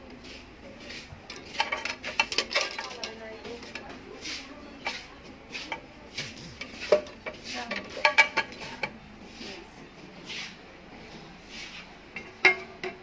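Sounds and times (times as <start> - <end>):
frying pans clinking together: 1.3 - 3.9, 4.8 - 9.0, 12.2 - 13.0.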